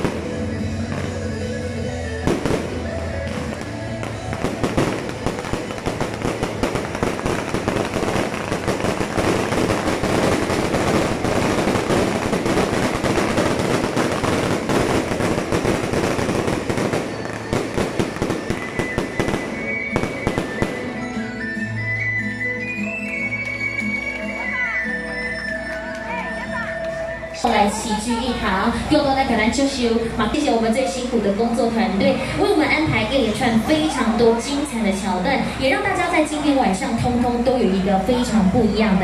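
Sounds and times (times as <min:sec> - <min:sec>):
fireworks crackling: 0:00.0 - 0:21.6.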